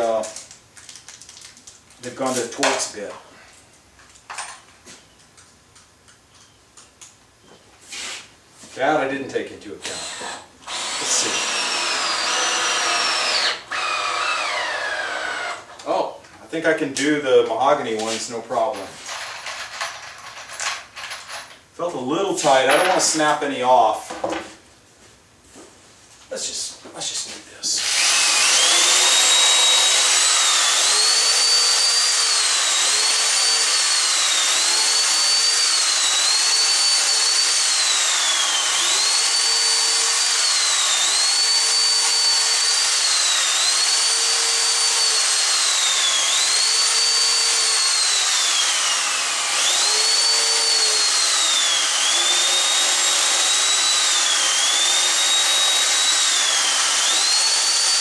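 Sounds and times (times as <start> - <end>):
electric drill motor whining: 9.9 - 15.8, 27.8 - 58.0.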